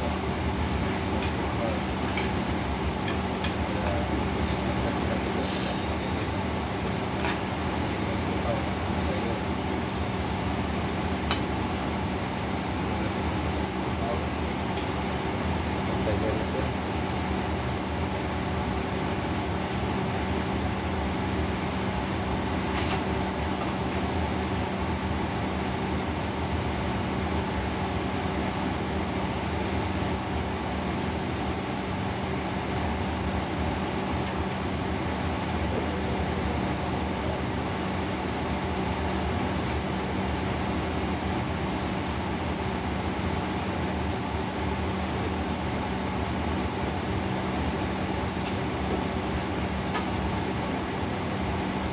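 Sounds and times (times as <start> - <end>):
exhaust hood fan roaring: 0.0 - 51.9
low steady hum: 0.0 - 51.9.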